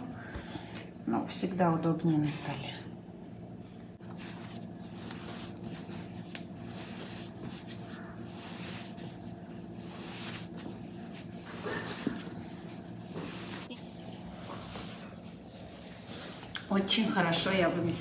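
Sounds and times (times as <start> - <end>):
hands kneading dough: 3.8 - 18.0.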